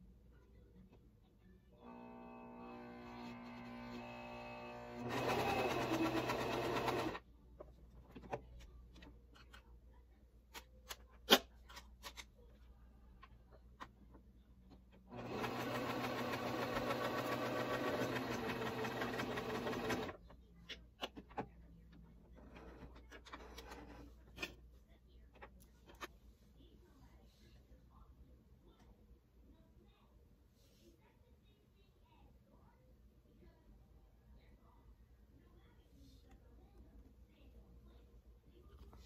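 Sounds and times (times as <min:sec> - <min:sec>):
sewing machine stitching: 0:01.9 - 0:07.2, 0:15.1 - 0:20.2.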